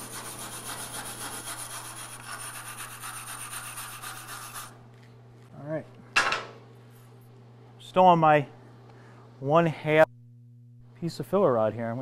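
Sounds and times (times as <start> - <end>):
wire brush scrubbing metal: 0.0 - 4.8.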